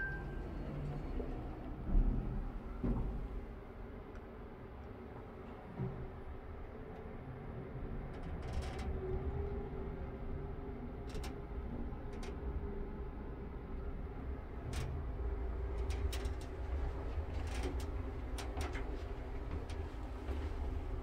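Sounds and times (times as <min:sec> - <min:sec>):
elevator car rumbling: 0:00.0 - 0:21.0.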